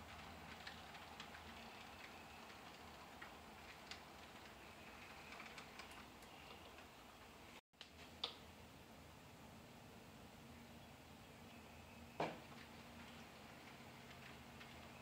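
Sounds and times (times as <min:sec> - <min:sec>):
model train wheels clicking: 0:00.0 - 0:07.3
faint high motor hum: 0:08.4 - 0:15.0.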